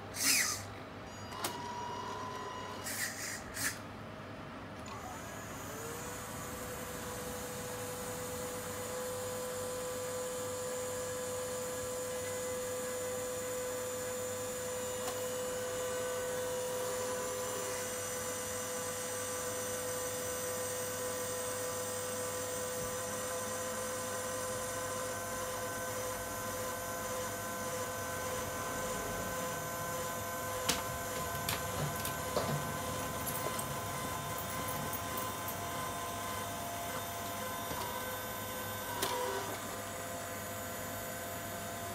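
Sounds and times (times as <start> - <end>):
toy truck tipper whining: 0.2 - 0.7.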